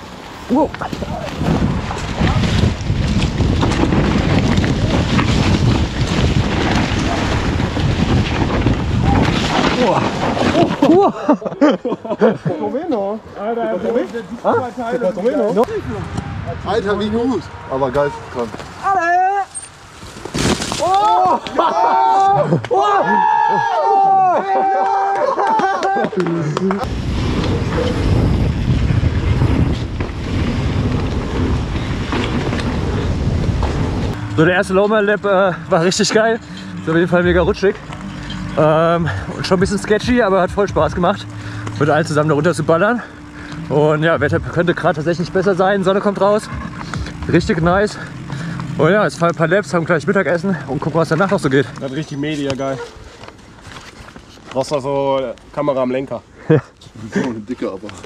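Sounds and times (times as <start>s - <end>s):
wind buffeting microphone: 0.5s - 10.8s, 26.8s - 34.8s
bike clicks and rattles: 0.7s - 11.0s, 25.6s - 34.2s, 45.4s - 55.6s.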